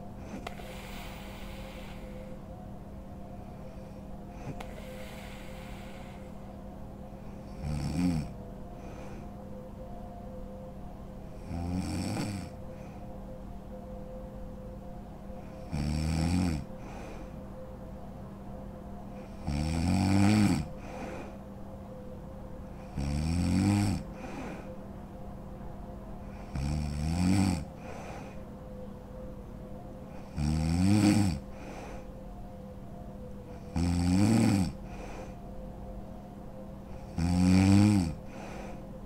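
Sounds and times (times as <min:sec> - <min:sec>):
faint steady hum: 0:00.0 - 0:39.0
quiet breathing: 0:00.0 - 0:39.0
woman snoring: 0:00.2 - 0:02.4, 0:04.4 - 0:06.4, 0:07.3 - 0:09.2, 0:11.4 - 0:12.6, 0:15.5 - 0:17.2, 0:19.2 - 0:21.4, 0:22.8 - 0:24.7, 0:26.3 - 0:28.4, 0:30.1 - 0:32.1, 0:33.6 - 0:35.4, 0:37.0 - 0:38.8.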